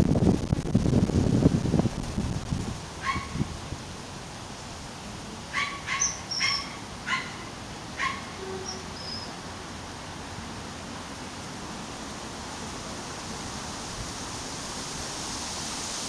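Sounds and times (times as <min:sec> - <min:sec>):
magpie harsh calls: 0:05.6 - 0:09.3.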